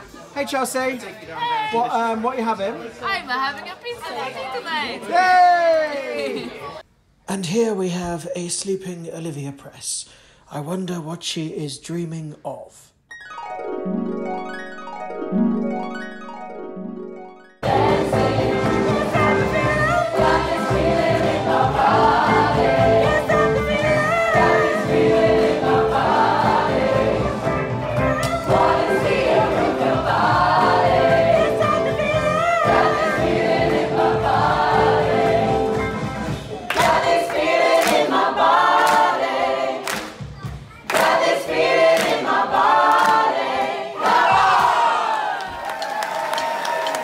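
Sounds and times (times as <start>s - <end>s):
plucked notes: 13.1s - 37.0s
cast singing with instrumental backing: 17.6s - 44.5s.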